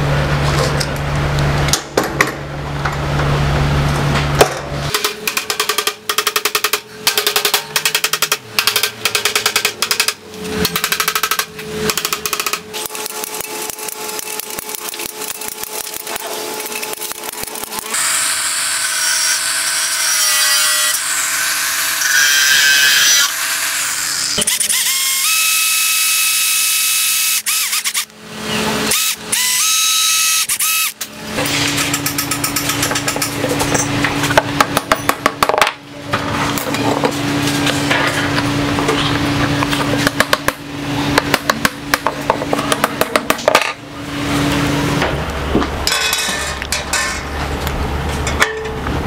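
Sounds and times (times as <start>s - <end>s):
electric drill whining: 10.9s - 31.0s.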